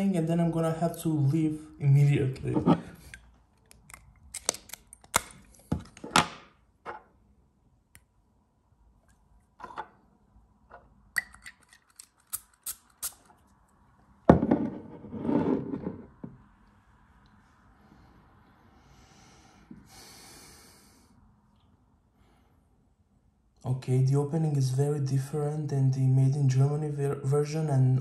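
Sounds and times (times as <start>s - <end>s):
bottle cap clicks and taps: 11.2s - 11.8s
breathy sniff: 18.2s - 21.2s.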